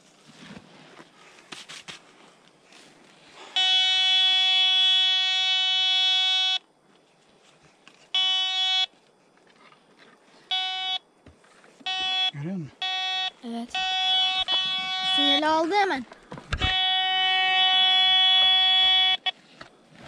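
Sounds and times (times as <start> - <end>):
metal detector beeping: 3.5 - 6.7, 8.2 - 9.0, 10.5 - 11.0, 11.8 - 19.4.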